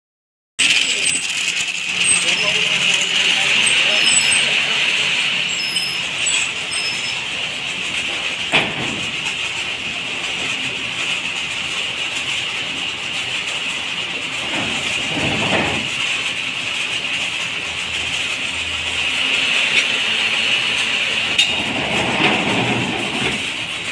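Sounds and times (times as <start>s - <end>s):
mechanical clatter and hiss: 6.0s - 18.5s, 21.0s - 23.9s
metal scraping: 21.1s - 23.7s.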